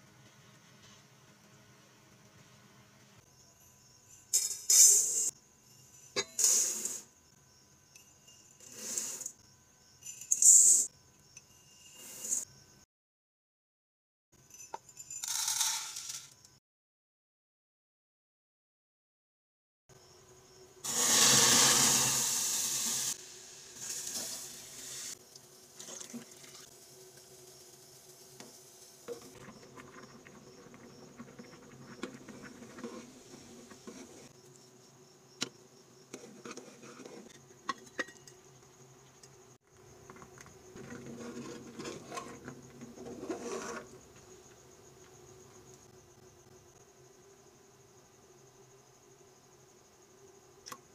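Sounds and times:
pot boiling: 0:20.8 - 0:34.4, 0:39.6 - 0:44.2
pot being stirred: 0:28.4 - 0:34.4.

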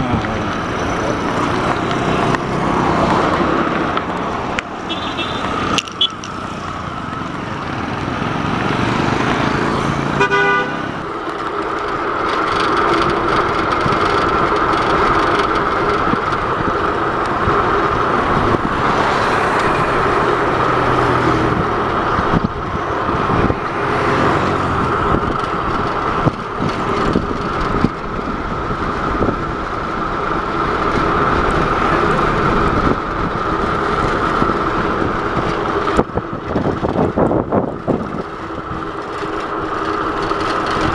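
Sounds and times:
vehicle horn toot: 0:04.8 - 0:06.2, 0:10.2 - 0:10.9
wind rushing over microphone: 0:11.9 - 0:40.9.

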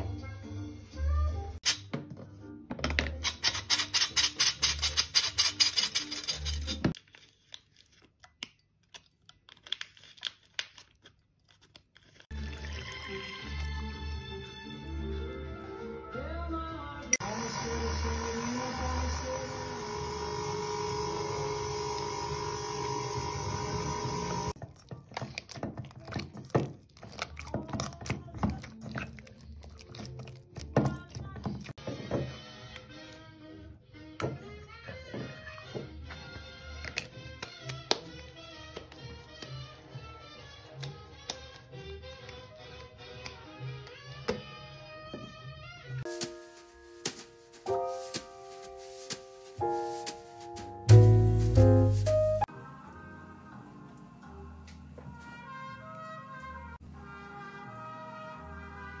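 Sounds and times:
flour sifter metallic scratching: 0:03.4 - 0:07.0
stand mixer motor humming: 0:17.2 - 0:24.6.

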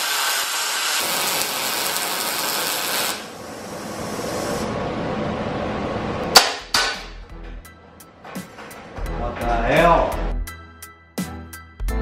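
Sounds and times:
welding arc crackling: 0:00.0 - 0:04.7.

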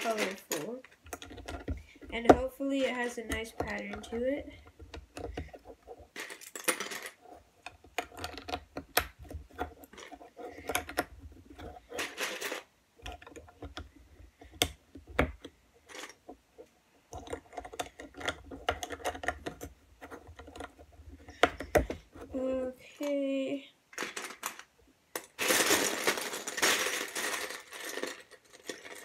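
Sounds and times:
plastic toy bricks clicking: 0:00.0 - 0:16.3, 0:17.1 - 0:22.0.

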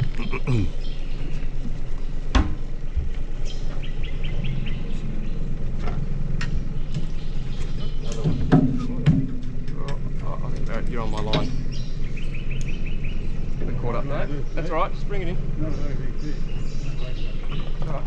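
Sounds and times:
chirps: 0:00.0 - 0:09.1, 0:09.8 - 0:18.0
boat motor idling: 0:00.0 - 0:18.0.

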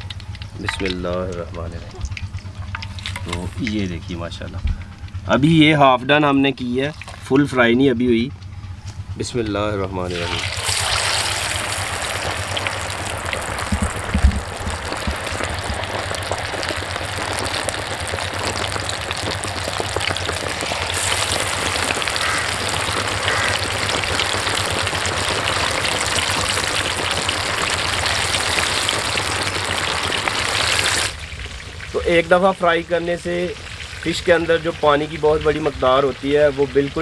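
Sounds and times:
fish deep-frying in bubbling oil: 0:00.0 - 0:05.6, 0:06.4 - 0:07.6, 0:10.0 - 0:37.0
low thumps: 0:12.8 - 0:16.8.

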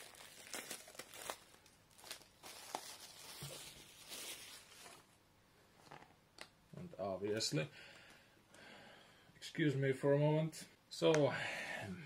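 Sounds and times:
plastic wrap crinkling and tearing: 0:00.0 - 0:05.1.

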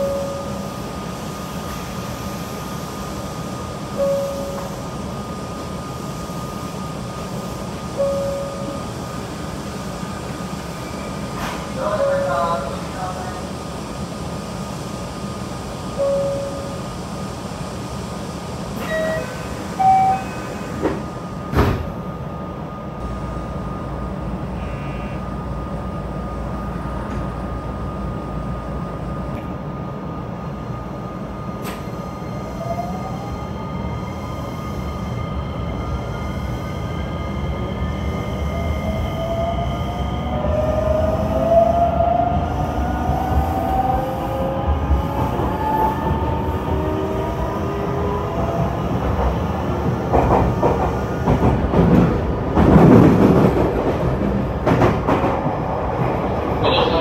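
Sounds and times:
train running rumble: 0:00.0 - 0:57.0
electric train inverter whining: 0:14.6 - 0:57.0
short electronic beeps: 0:24.5 - 0:25.3.

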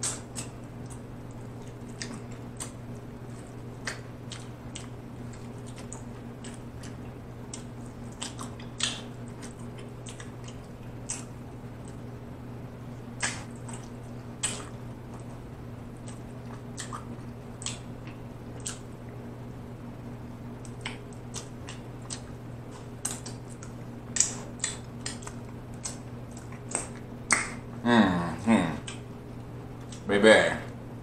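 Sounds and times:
wet lip smacks and sucking: 0:00.0 - 0:01.0, 0:13.2 - 0:15.3, 0:20.6 - 0:27.6
steady low hum: 0:00.0 - 0:31.0.

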